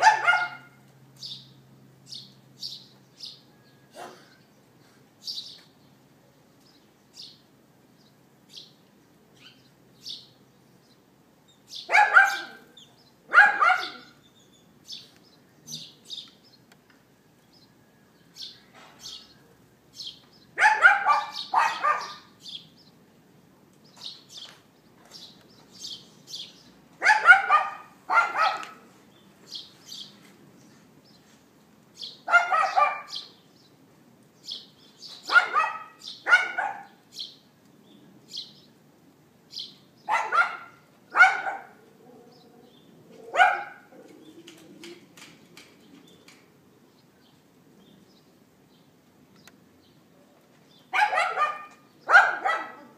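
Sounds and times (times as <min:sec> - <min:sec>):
dog yapping: 0:00.0 - 0:00.8, 0:11.9 - 0:12.7, 0:13.3 - 0:14.2, 0:20.6 - 0:22.3, 0:27.0 - 0:28.9, 0:32.2 - 0:33.3, 0:35.2 - 0:37.0, 0:40.1 - 0:42.3, 0:43.2 - 0:44.1, 0:50.9 - 0:52.9.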